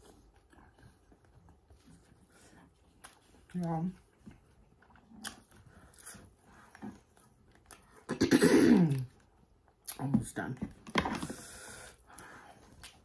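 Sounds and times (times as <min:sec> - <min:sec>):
mouth smacks and clicks: 0:05.1 - 0:06.1.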